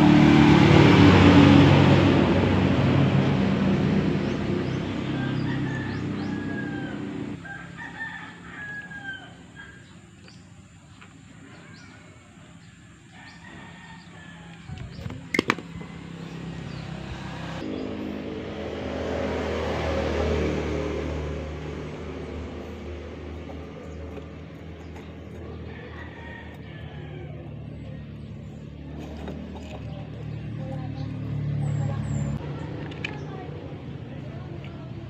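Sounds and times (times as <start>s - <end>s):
low engine drone: 0.0s - 7.6s, 14.8s - 35.0s
rooster crowing: 5.0s - 9.9s, 13.1s - 14.9s, 25.4s - 27.7s.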